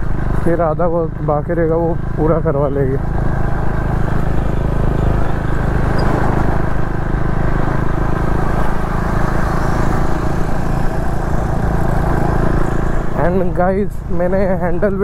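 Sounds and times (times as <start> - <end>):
motorcycle engine running: 0.0 - 15.0
riding wind rush: 3.0 - 15.0.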